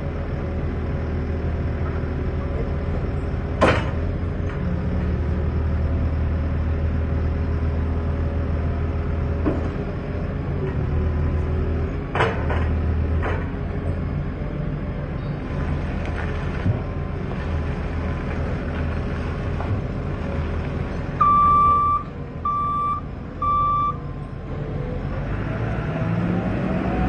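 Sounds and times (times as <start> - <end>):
diesel engine running: 0.0 - 27.0
reversing alarm beeps: 21.2 - 24.1.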